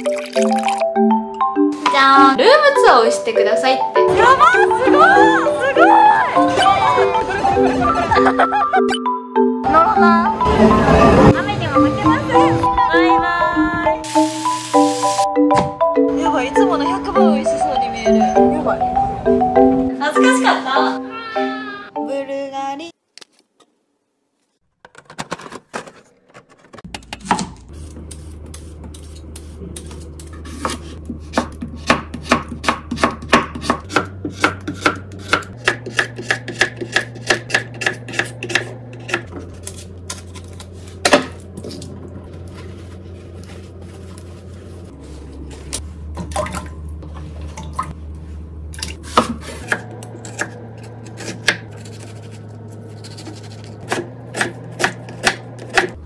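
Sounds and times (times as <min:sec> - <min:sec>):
knife chopping on wooden board: 0:30.5 - 0:39.8, 0:49.0 - 0:52.3, 0:53.1 - 0:56.0.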